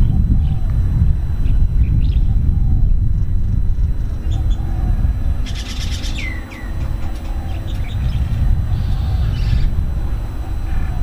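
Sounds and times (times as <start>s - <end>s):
steady low rumble: 0.0s - 11.0s
bird chattering and whistling: 4.2s - 9.8s.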